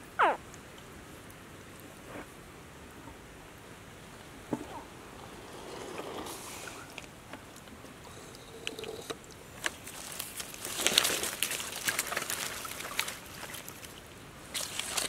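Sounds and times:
water splashing and trickling: 6.2 - 15.0.

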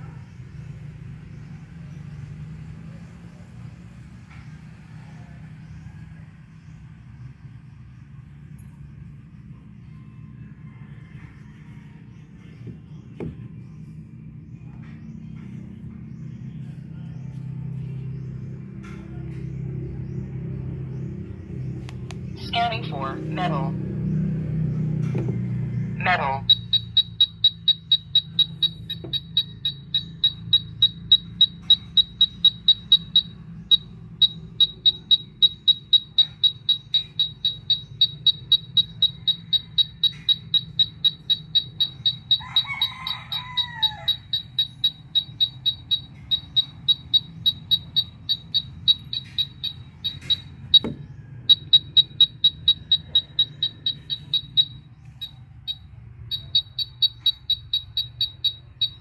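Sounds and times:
bird calling: 26.0 - 59.0
wall scanner short high beeps: 26.4 - 59.0.

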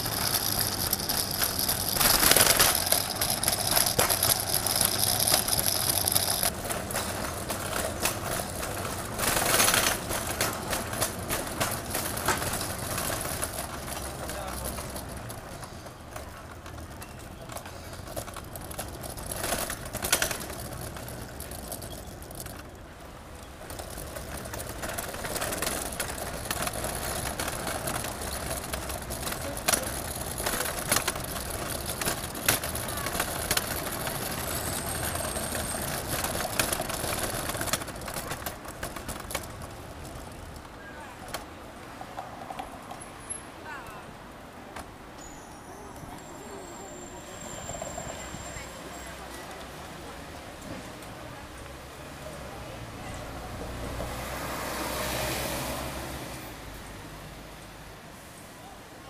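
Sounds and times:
sharp clicks and knocks: 0.0 - 22.8
traffic going by: 0.0 - 59.0.

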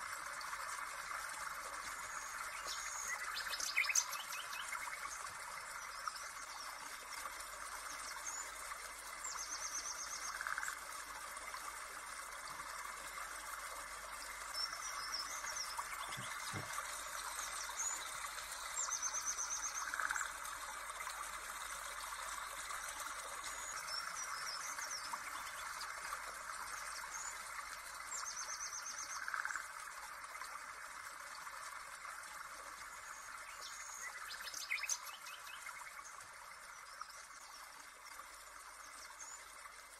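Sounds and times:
birds chirping: 14.8 - 18.2.

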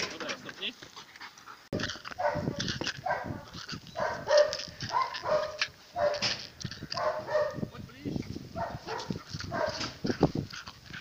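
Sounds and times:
dog barking: 2.2 - 6.3, 7.0 - 7.7, 8.6 - 10.0.

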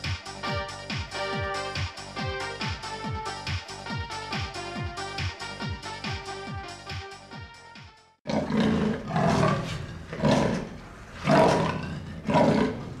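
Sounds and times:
electronic dance music: 0.0 - 8.2
cat snarling: 8.3 - 13.0.

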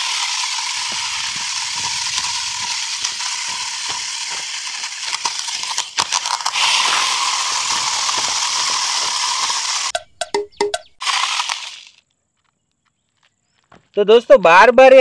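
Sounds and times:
toy car motor whirring: 0.0 - 9.9, 11.0 - 12.0
wheels crackling over rough ground: 0.0 - 10.0, 10.9 - 14.1.

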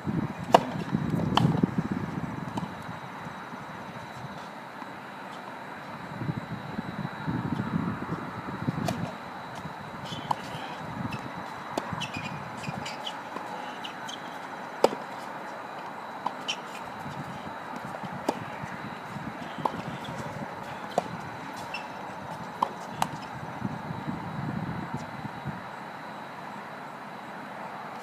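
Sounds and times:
racket striking tennis ball: 0.4 - 1.7, 10.1 - 15.3, 17.7 - 23.3.

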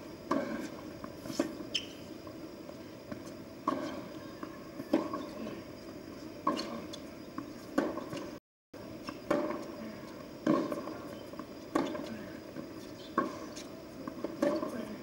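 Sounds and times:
tennis racket hitting ball: 3.6 - 5.5, 6.4 - 8.3, 9.1 - 9.8, 10.4 - 12.4, 13.0 - 15.0.

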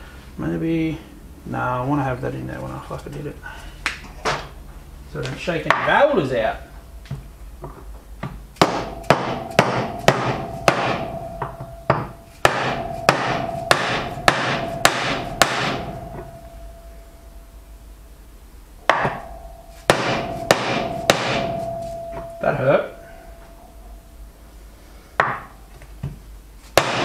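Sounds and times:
hammer blows on metal: 8.6 - 17.0, 18.9 - 23.8
metal ringing: 8.6 - 17.7, 18.8 - 24.4.

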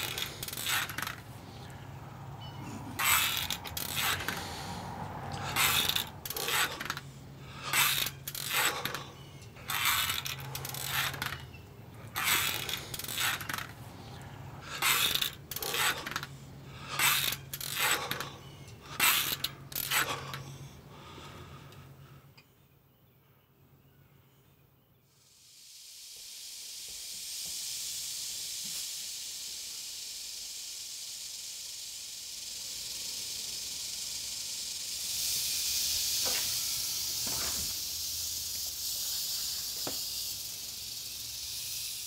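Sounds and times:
short rattling bursts: 0.0 - 21.5, 26.6 - 42.0
steady low hum: 0.0 - 25.1.

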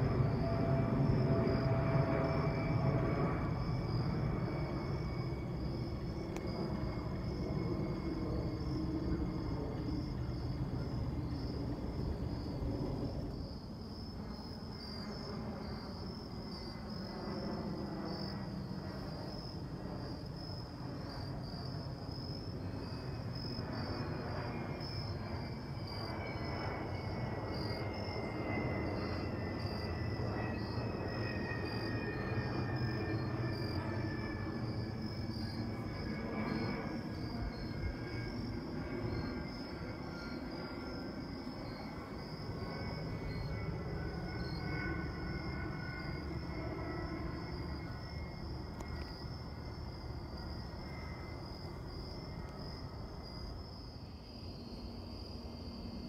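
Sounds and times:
insects trilling: 0.0 - 56.0
jet airliner flying overhead: 0.0 - 56.0.

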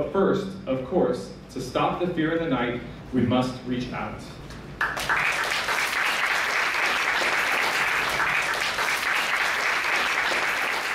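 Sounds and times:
audience applauding: 4.8 - 10.9.

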